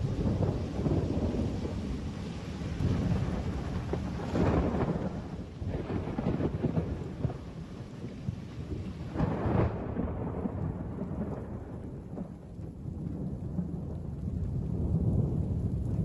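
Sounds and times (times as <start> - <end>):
flood torrent rushing rumble: 0.0 - 8.0.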